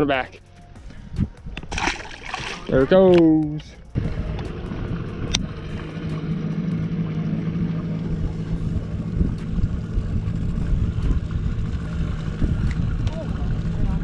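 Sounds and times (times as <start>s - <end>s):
boat motor running: 1.6s - 14.0s.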